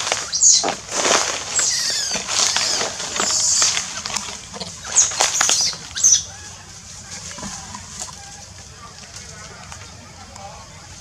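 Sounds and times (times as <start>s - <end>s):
twigs snapping: 0.0s - 6.2s
dry twigs rustling and crackling: 0.0s - 10.5s.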